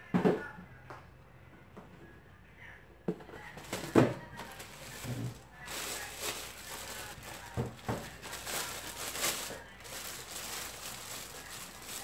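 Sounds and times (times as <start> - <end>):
plastic wrapping crinkling: 3.6 - 12.0.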